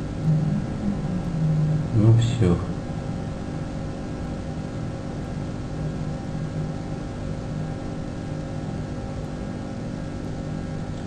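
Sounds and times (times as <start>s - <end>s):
faint held tones: 0.0s - 3.9s
low mechanical hum: 0.0s - 11.0s.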